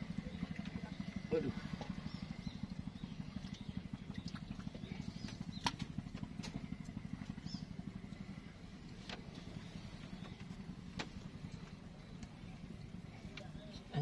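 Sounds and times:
small engine chugging: 0.0s - 14.0s.

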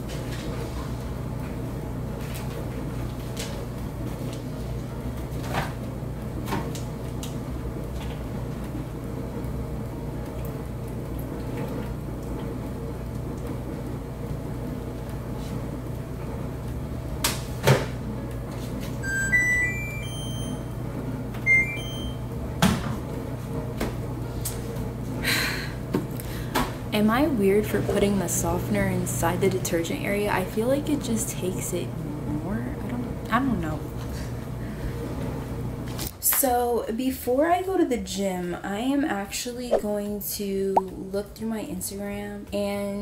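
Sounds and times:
washing machine beeping: 19.0s - 22.6s.

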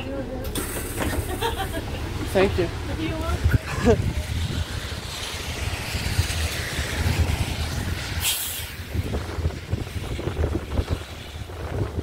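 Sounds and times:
bus engine rumble: 0.0s - 12.0s
air brake hiss: 8.2s - 8.7s.

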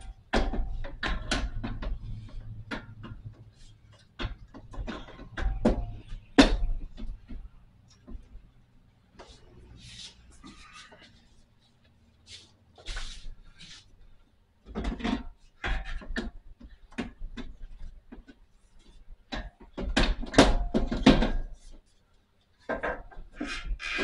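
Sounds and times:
radiator knocking and scraping: 0.0s - 8.3s.

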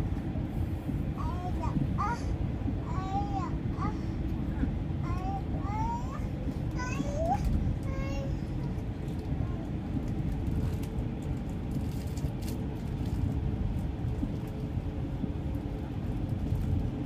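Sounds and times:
train rumbling inside carriage: 0.0s - 17.0s.

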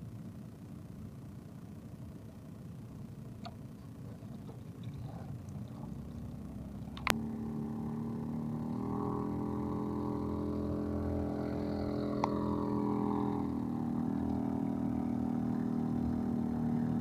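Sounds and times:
boat engine running: 2.7s - 17.0s
low rumble: 3.7s - 16.3s.

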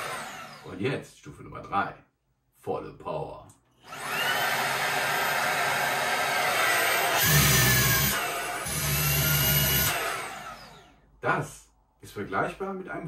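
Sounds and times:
handheld vacuum motor whining: 0.0s - 0.7s, 3.8s - 11.0s.

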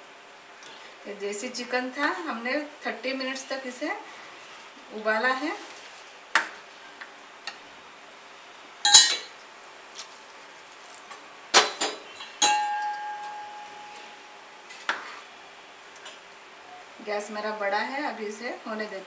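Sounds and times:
steel ladle clanking on pan: 8.9s - 9.4s, 11.6s - 13.6s
ringing metal tone: 12.4s - 14.4s.

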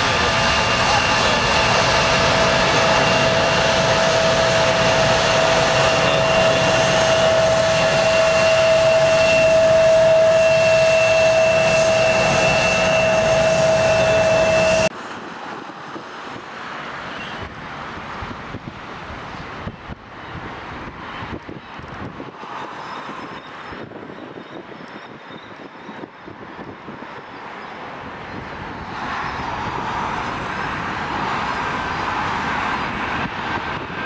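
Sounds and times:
jet engine roar with whine: 0.0s - 34.0s
wind noise on microphone: 17.2s - 34.0s.

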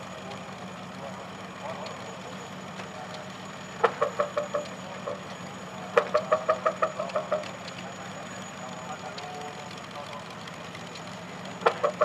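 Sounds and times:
loud rapid engine knocking: 0.0s - 12.0s
tractor engine running: 0.0s - 12.0s.

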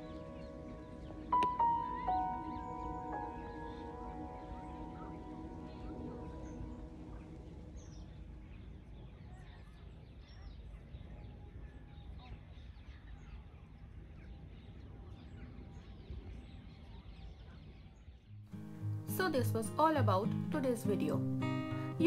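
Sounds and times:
soft background music: 0.0s - 10.0s, 18.5s - 22.0s
bird chirps: 0.0s - 11.4s.

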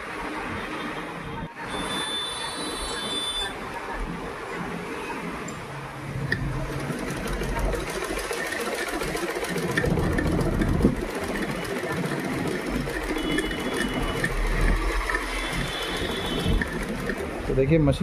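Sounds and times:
sewing machine stitching: 6.4s - 17.7s.

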